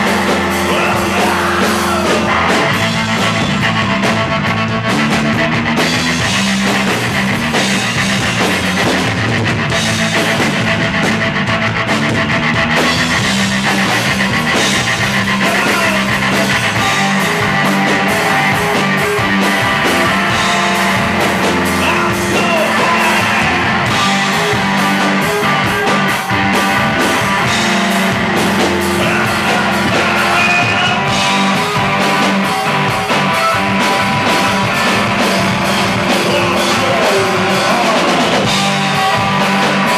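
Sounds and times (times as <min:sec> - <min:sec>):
live rock band playing: 0:00.0 - 0:39.9.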